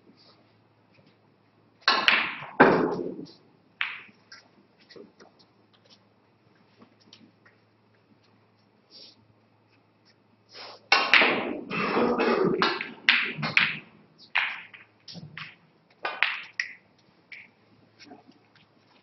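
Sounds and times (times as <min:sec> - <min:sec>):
snooker balls knocking: 0:01.8 - 0:04.2, 0:10.9 - 0:17.6
snooker balls clicking: 0:01.8 - 0:06.0, 0:10.9 - 0:17.6.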